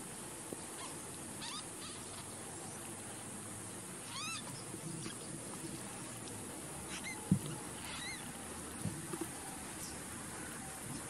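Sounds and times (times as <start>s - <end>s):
kittens squeaking mews: 0.8s - 2.1s, 4.1s - 4.5s, 6.9s - 8.3s
soft thump: 7.3s - 7.6s.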